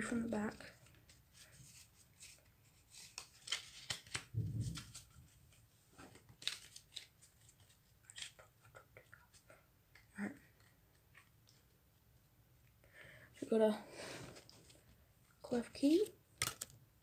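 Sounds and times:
cards clicking and snapping: 3.0s - 4.9s, 6.2s - 7.1s, 8.1s - 8.6s, 16.4s - 16.8s
soft low thump: 4.4s - 4.8s.

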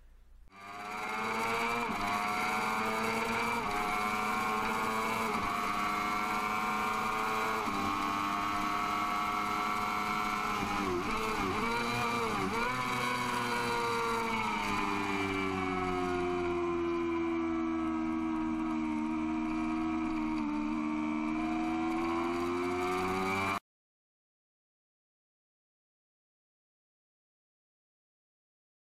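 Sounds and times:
motorcycle engine revving: 0.5s - 23.6s.

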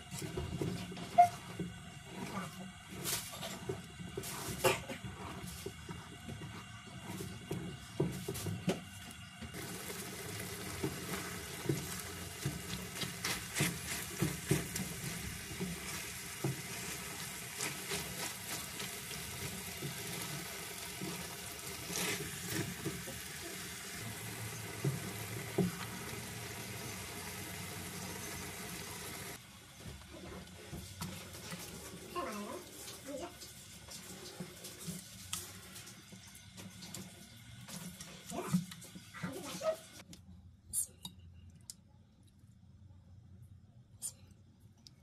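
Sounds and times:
food sizzling in frying pan: 9.5s - 29.4s
plastic spatula scraping pan: 10.6s - 23.5s.

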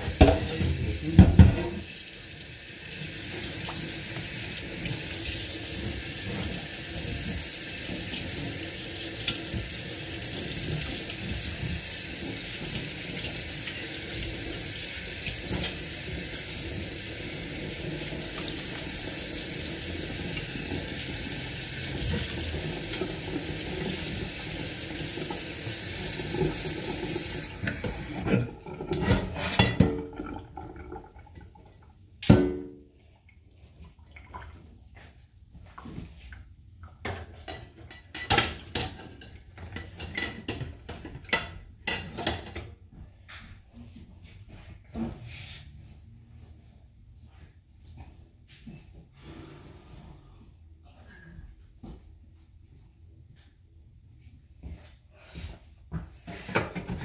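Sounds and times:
dishes and utensils clinking: 27.7s - 30.2s, 37.1s - 42.7s.

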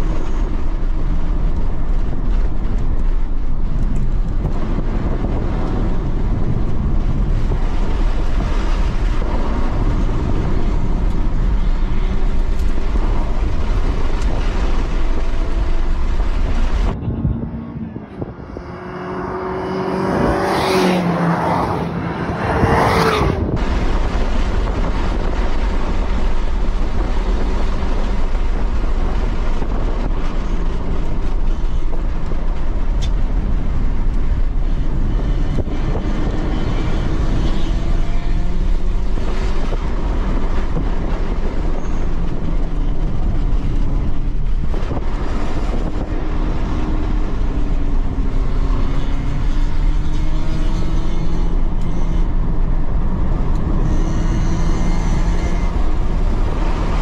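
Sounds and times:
road tyre and wind noise: 0.0s - 57.0s
electric motor whine: 53.8s - 55.9s.

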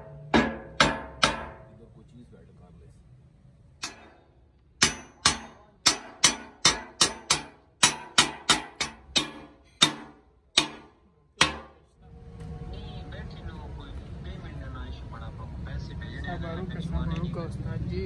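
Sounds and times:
hammer clanking on steel welds: 0.0s - 1.7s, 3.8s - 4.2s, 4.8s - 11.8s.

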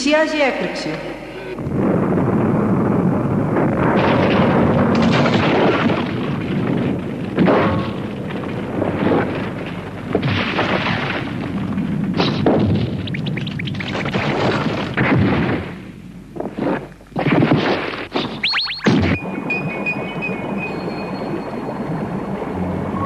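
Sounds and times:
continuous heavy rumble: 1.6s - 13.5s, 19.2s - 23.0s
loud blasts and crashes: 1.6s - 15.9s.

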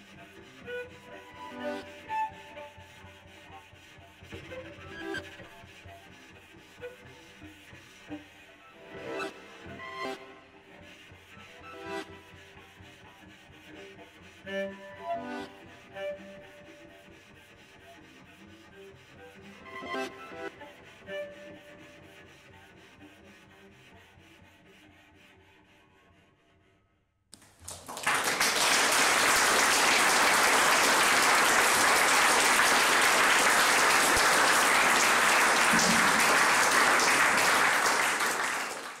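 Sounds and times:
audience applause: 27.4s - 39.0s.

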